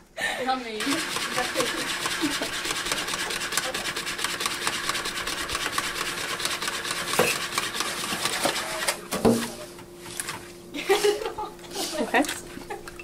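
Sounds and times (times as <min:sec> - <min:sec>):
whisk scraping plastic bowl: 0:00.8 - 0:10.5.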